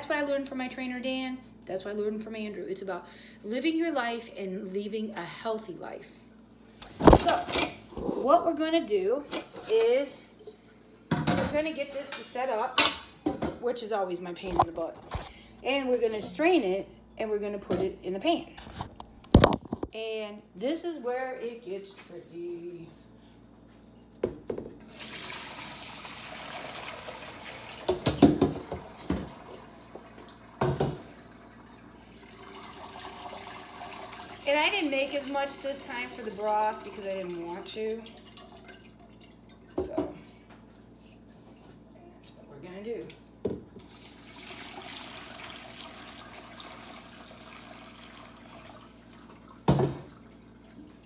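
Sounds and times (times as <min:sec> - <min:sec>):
liquid pouring and splashing: 0:24.9 - 0:34.6, 0:36.0 - 0:39.8, 0:43.8 - 0:51.0.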